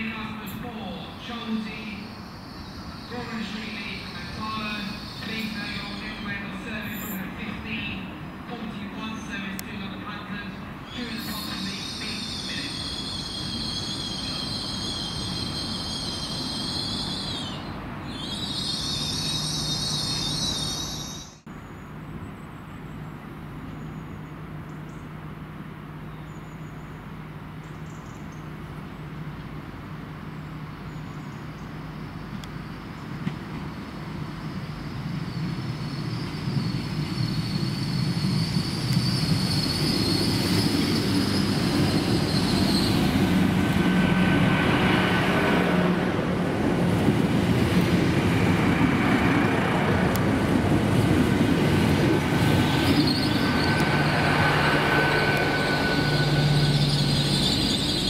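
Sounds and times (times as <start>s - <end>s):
train approaching: 0.0s - 58.0s
train wheel squeal: 2.1s - 7.3s, 10.9s - 21.5s, 33.5s - 45.6s, 51.8s - 58.0s.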